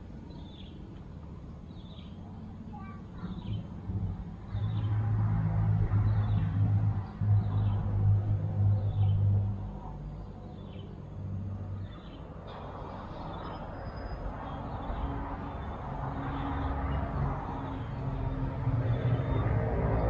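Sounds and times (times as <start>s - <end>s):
birds chirping: 0.1s - 3.7s.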